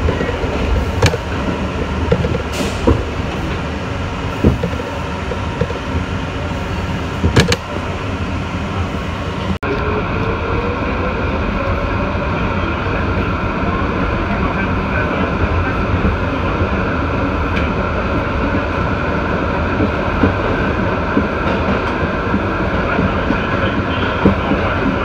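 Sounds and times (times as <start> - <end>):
wheels knocking: 0.0 - 6.2
passenger train rumbling: 0.0 - 25.0.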